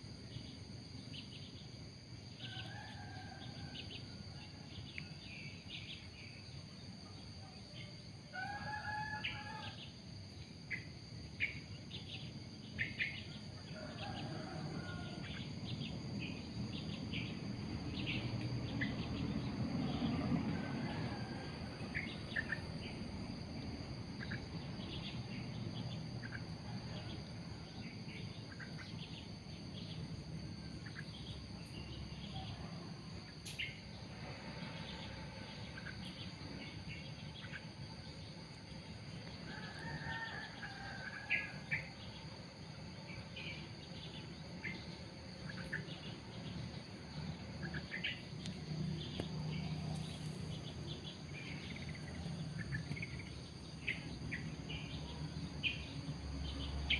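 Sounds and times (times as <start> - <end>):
insects trilling: 0.0 - 56.9.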